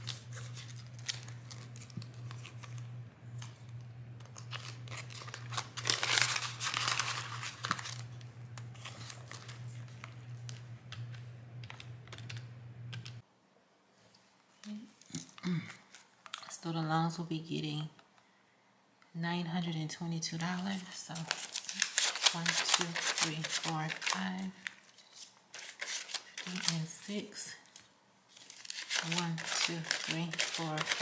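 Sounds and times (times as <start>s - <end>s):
banknotes and plastic crinkling: 0.0s - 13.2s, 15.5s - 16.7s, 20.4s - 31.0s
steady low hum: 0.0s - 13.2s.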